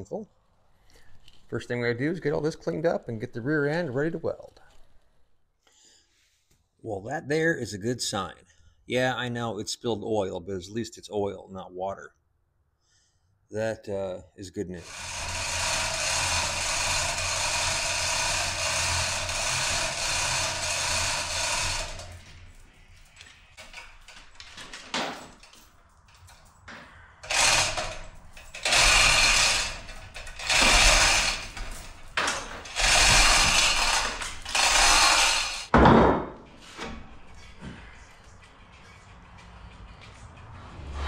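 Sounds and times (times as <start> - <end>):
chain hoist running: 14.8 - 26.6, 27.2 - 35.7.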